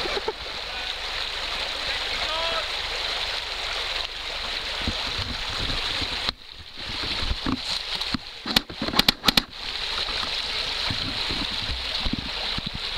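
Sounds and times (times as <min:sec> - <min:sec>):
stream rushing over rocks: 0:00.0 - 0:12.9
sharp clicks or knocks: 0:07.4 - 0:09.5.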